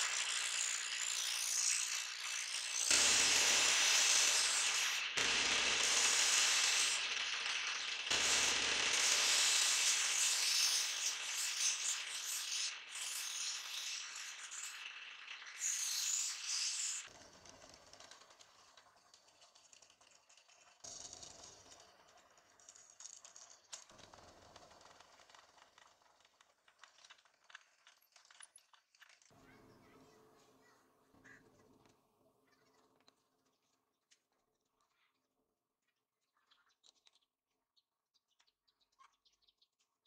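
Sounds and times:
drill press machine noise: 0.0 - 11.9
wood grinding on sanding disc: 0.0 - 14.8.

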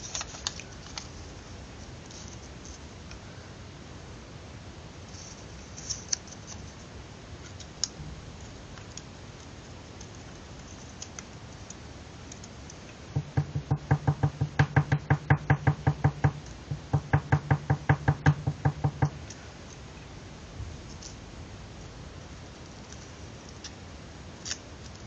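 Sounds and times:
rapid knocking: 13.1 - 19.2.

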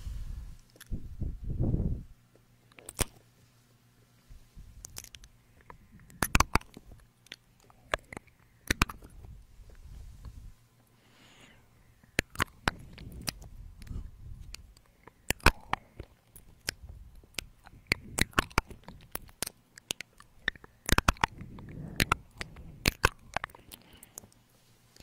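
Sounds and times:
wet mouth clicks and smacks: 2.7 - 3.2, 4.8 - 9.2, 12.0 - 24.4
soft low rumbles: 4.0 - 11.0, 11.6 - 19.5, 20.1 - 25.0.

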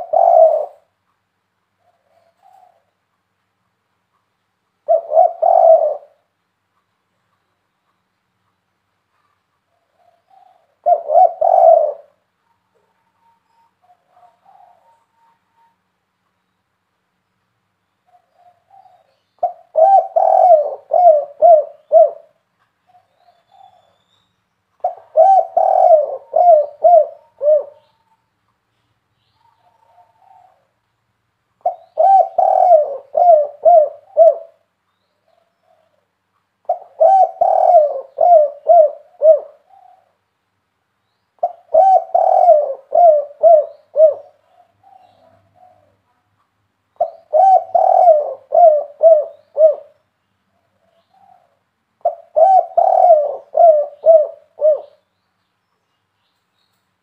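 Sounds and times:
dove cooing: 0.0 - 1.0, 1.8 - 3.0, 4.8 - 6.3, 9.2 - 15.8, 18.1 - 24.0, 24.8 - 28.1, 29.4 - 30.8, 31.6 - 40.2, 41.4 - 46.2, 47.0 - 55.1.

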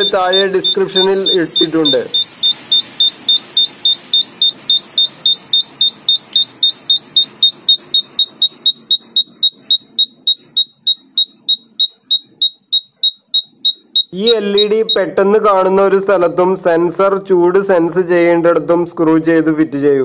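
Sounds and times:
high-pitched alarm beeping: 0.0 - 15.2.

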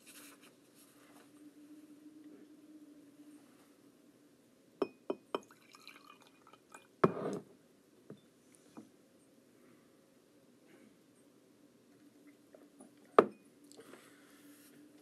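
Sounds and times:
glass clinking: 4.8 - 7.2.

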